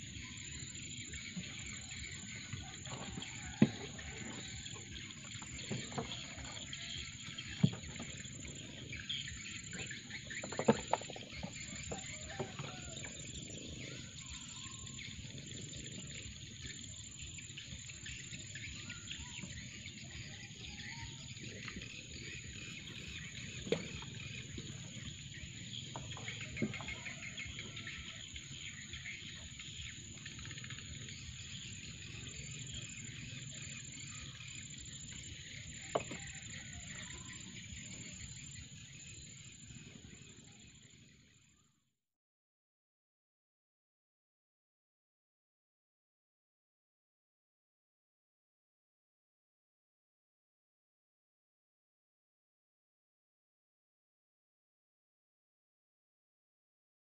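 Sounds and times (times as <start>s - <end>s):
birds chirping: 0.0s - 41.2s.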